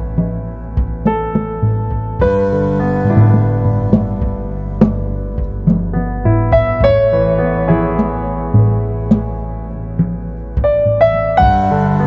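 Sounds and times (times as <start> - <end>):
soft piano music: 0.0 - 12.0.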